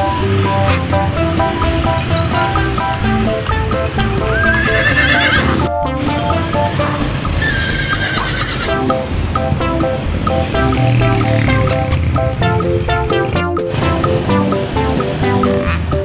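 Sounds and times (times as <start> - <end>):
plucked melody music: 0.0 - 16.0
horse whinnying: 4.3 - 5.6, 7.4 - 8.8.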